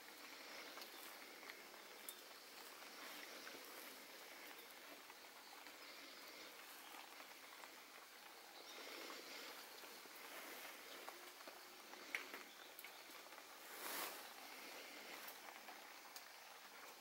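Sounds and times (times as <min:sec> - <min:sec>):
faint background hiss: 0:00.0 - 0:17.0
fingers rustling leaves and twigs: 0:13.4 - 0:15.4.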